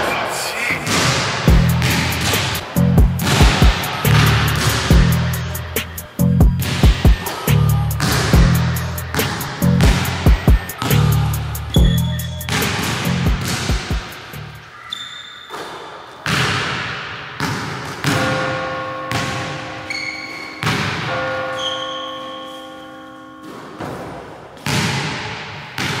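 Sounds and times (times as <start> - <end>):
music with echoing hits: 0.8 - 14.6, 17.5 - 26.0
low thuds: 1.5 - 5.4.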